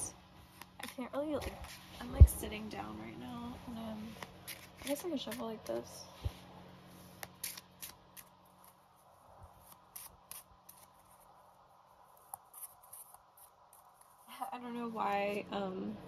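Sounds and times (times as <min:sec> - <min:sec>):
playing cards being shuffled: 0:00.4 - 0:02.2, 0:04.0 - 0:11.3, 0:12.1 - 0:14.4.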